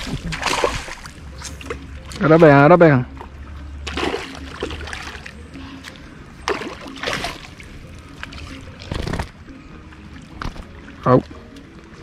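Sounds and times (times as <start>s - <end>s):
fish thrashing water splashing: 0.0s - 2.2s, 3.8s - 5.4s, 6.4s - 9.3s.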